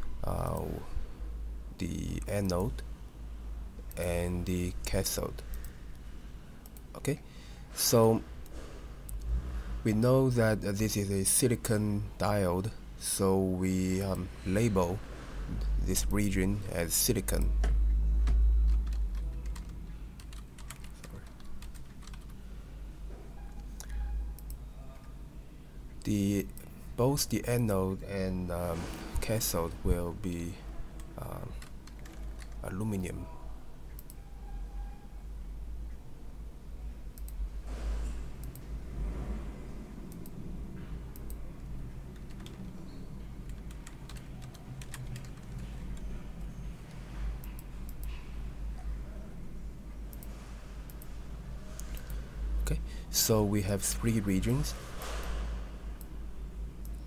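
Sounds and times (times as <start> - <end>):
low steady hum: 0.0 - 57.0
keyboard typing: 17.0 - 22.4, 31.0 - 33.1, 41.1 - 48.2.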